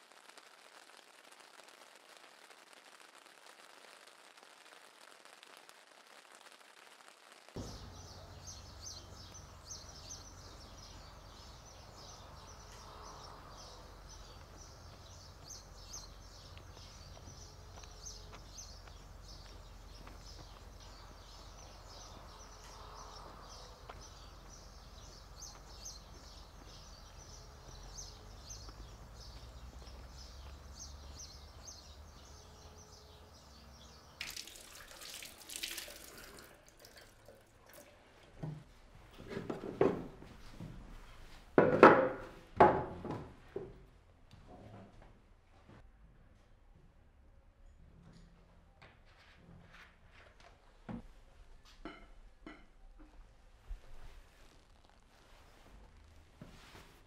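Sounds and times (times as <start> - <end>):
small birds chirping: 7.6 - 36.4.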